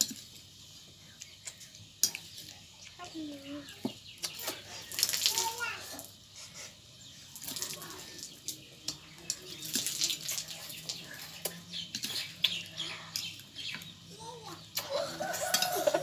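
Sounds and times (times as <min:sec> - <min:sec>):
children slurping noodles: 0:04.2 - 0:13.9, 0:14.5 - 0:16.0.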